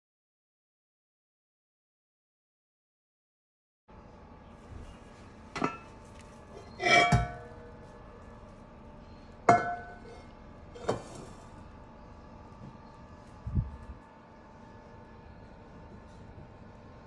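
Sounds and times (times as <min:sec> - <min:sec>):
cast iron cookware clanking: 0:05.5 - 0:06.0, 0:06.6 - 0:07.5, 0:09.5 - 0:11.4.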